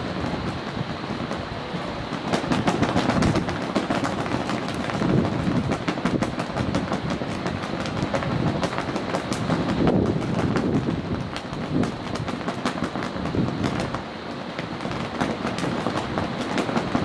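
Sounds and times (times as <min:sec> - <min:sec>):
jet engines roaring: 0:00.0 - 0:17.0.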